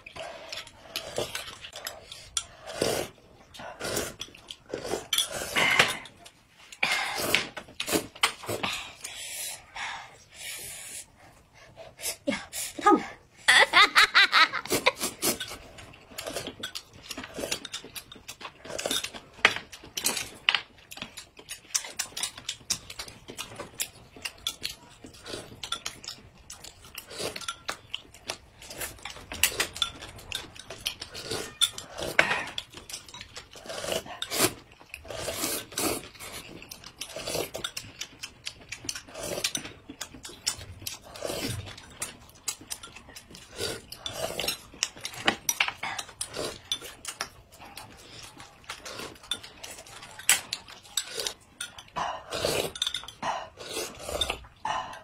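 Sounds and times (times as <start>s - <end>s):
chewing: 0.0s - 9.1s, 14.6s - 55.0s
slurping noodles and soup: 0.0s - 12.8s, 14.6s - 19.3s, 31.0s - 38.0s, 38.9s - 42.4s, 43.2s - 55.0s
utensils clinking on glass: 52.6s - 53.2s.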